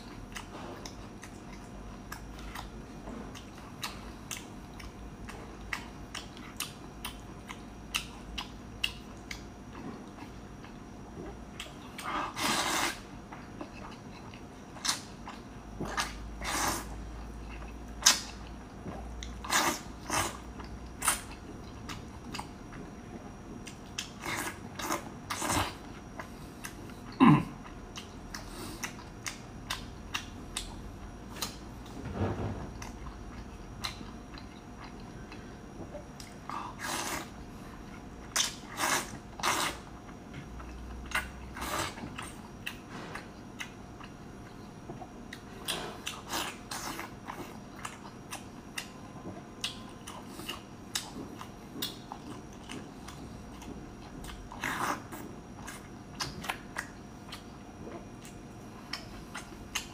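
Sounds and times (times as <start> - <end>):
wet chewing: 0.0 - 32.0, 32.7 - 59.9
noodle slurping: 12.1 - 13.1.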